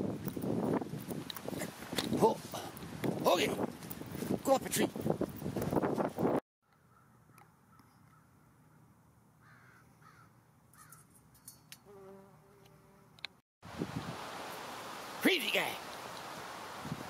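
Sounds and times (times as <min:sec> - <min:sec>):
bumblebee buzzing: 0:11.8 - 0:13.4.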